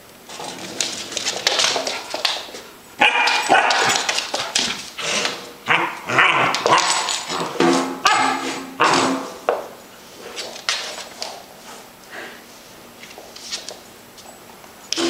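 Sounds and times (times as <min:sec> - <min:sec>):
rough noisy rustle: 0:00.0 - 0:05.6.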